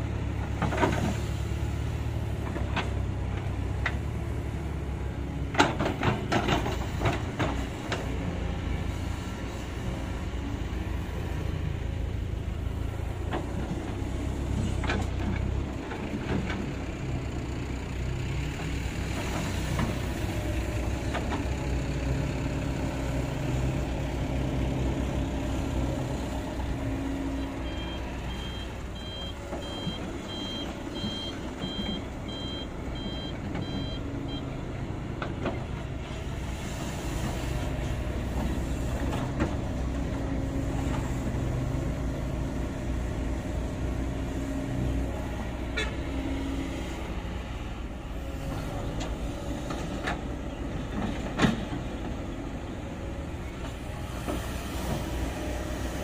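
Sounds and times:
excavator diesel engine: 0.0s - 56.0s
reversing alarm beeping: 27.5s - 34.5s.

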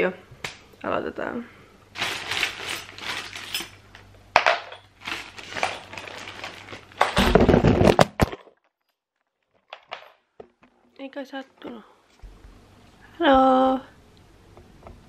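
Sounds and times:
plastic bag crinkling: 2.0s - 3.8s, 5.0s - 8.2s
metal screws clinking: 2.6s - 3.8s
camera tipping over rumble: 5.4s - 8.4s.

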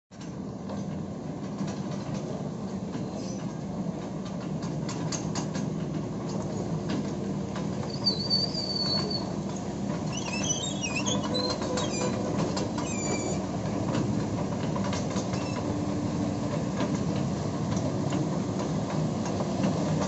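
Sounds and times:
steel tracks clanking: 0.1s - 20.0s
excavator diesel engine running: 0.4s - 20.0s
high squeal: 7.9s - 9.3s, 10.1s - 13.5s.

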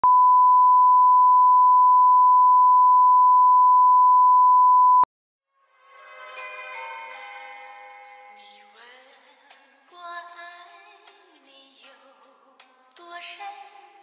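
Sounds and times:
music with held notes: 5.6s - 9.6s.

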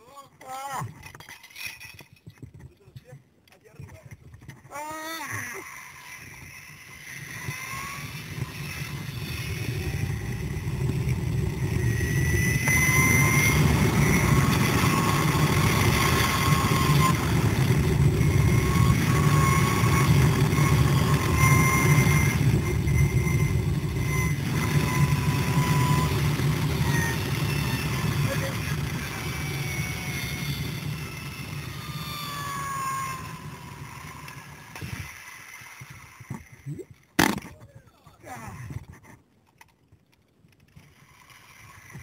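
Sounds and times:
zipline pulleys whirring on cable: 0.0s - 2.8s, 3.7s - 37.4s, 38.1s - 42.0s.

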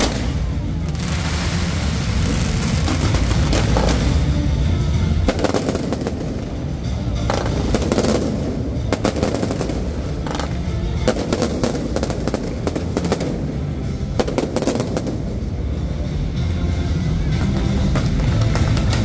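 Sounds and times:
fireworks bangs and crackling: 0.0s - 19.0s.

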